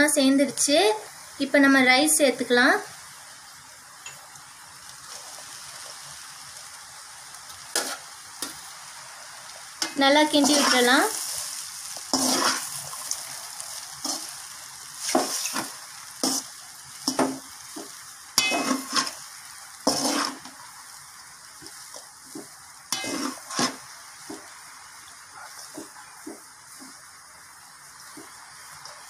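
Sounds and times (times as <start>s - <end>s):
light frying sizzle: 0.0s - 29.0s
metal spatula scraping a steel pan: 9.8s - 11.0s, 12.1s - 12.8s, 18.4s - 19.2s, 19.9s - 20.5s, 22.9s - 23.8s.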